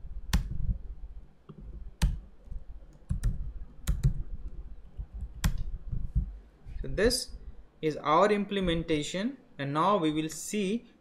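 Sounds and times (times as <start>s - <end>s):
typing on computer keyboard: 2.9s - 4.2s.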